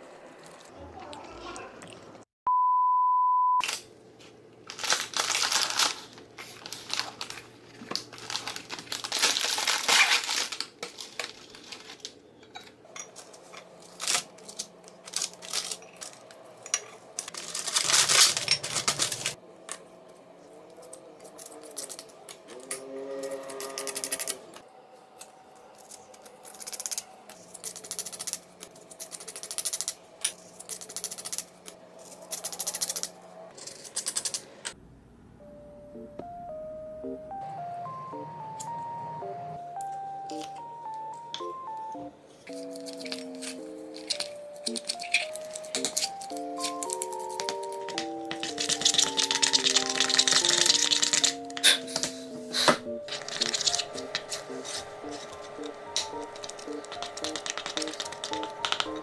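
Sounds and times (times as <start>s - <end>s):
plastic packaging crinkling: 4.6s - 12.2s, 13.4s - 16.4s, 17.2s - 19.4s, 42.5s - 52.1s, 53.1s - 59.0s
cookies clicking and tapping: 42.5s - 52.2s, 53.1s - 59.0s.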